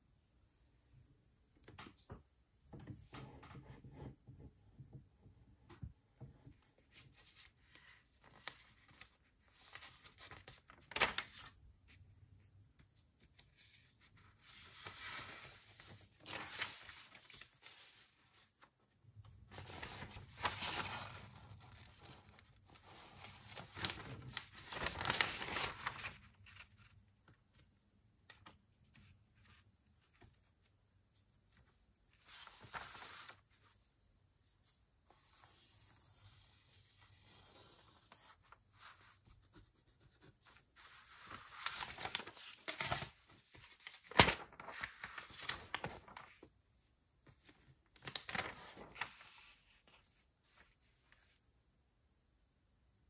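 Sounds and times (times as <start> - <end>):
paper rustling: 6.5 - 12.0, 12.7 - 18.7, 19.3 - 27.7, 28.3 - 46.5, 47.2 - 51.4.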